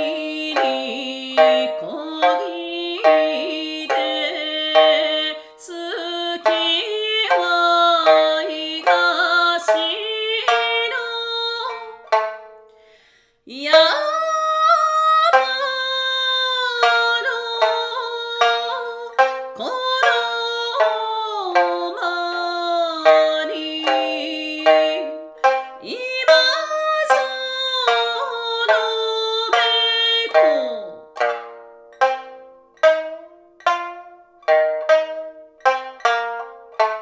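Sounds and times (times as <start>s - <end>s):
woman singing: 0.0s - 12.1s, 13.5s - 31.0s
plucked lute notes: 0.0s - 37.0s.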